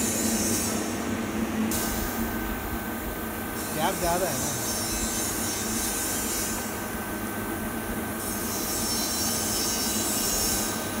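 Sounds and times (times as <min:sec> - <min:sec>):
mechanical background noise: 0:00.0 - 0:06.5.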